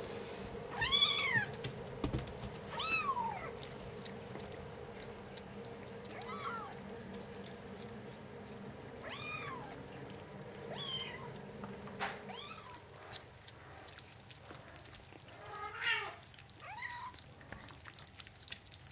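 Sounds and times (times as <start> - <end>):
kittens mewing: 0.7 - 1.8, 2.7 - 6.9, 8.8 - 13.1.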